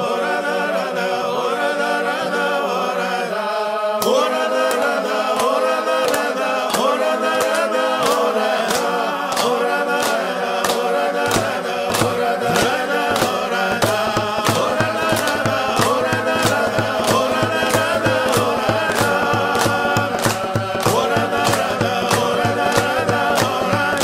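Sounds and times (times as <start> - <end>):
choir-like chanting voices: 0.0 - 24.0
steady beat: 11.3 - 24.0.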